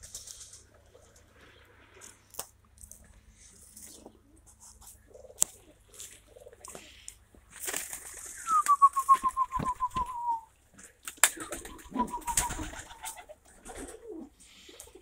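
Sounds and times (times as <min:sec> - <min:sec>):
pigeons cooing: 0:03.6 - 0:10.5, 0:11.2 - 0:15.0.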